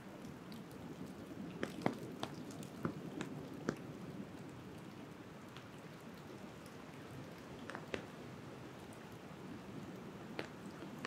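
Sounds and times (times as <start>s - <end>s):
rain pattering: 0.0s - 11.0s
single raindrops striking close: 5.5s - 8.2s, 9.9s - 11.0s.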